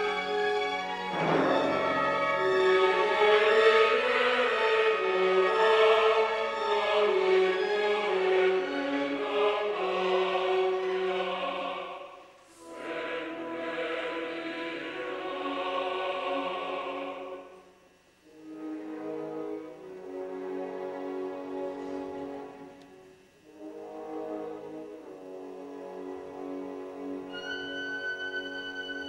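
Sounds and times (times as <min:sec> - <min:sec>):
operatic chorus singing: 0:00.0 - 0:17.7.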